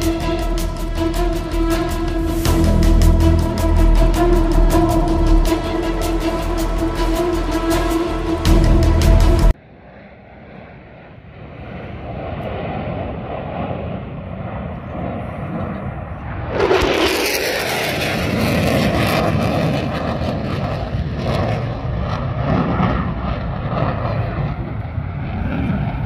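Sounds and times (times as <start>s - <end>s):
fighter jet engine roar: 0.0s - 26.0s.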